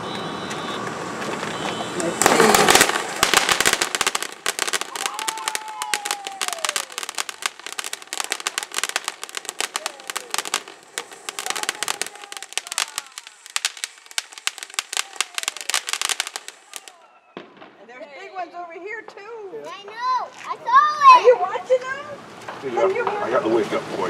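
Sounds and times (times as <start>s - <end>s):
firework fountain crackling: 0.0s - 24.0s
faint falling whistles: 4.8s - 17.7s.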